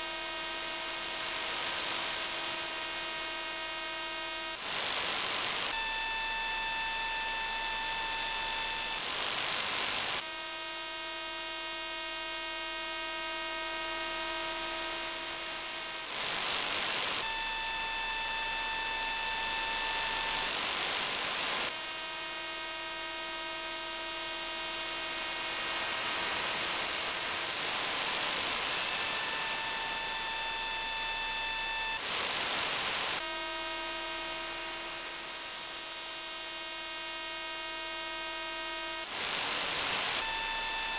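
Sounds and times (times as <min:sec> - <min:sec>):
radio buzz of spaced tones: 0:00.0 - 0:04.7, 0:05.7 - 0:09.2, 0:10.1 - 0:40.9.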